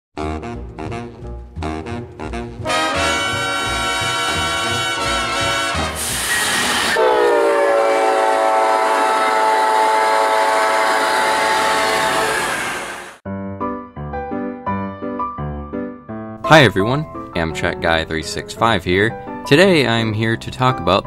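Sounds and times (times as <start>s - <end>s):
locomotive horn chord: 0.2s - 13.2s.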